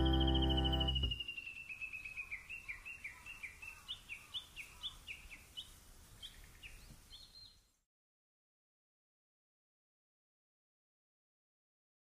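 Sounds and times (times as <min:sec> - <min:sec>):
bird chirping: 0:00.0 - 0:07.8.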